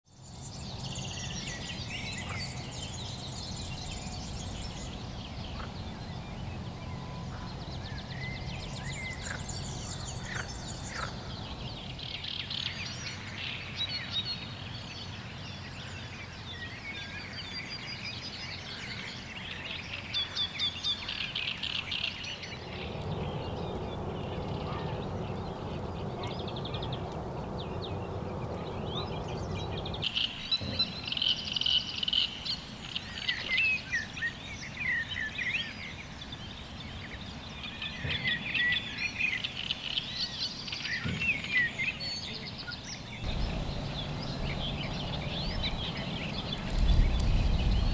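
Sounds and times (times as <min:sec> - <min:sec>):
songbirds singing: 0:00.1 - 0:47.9
steady rushing noise: 0:22.3 - 0:30.2, 0:43.2 - 0:47.9.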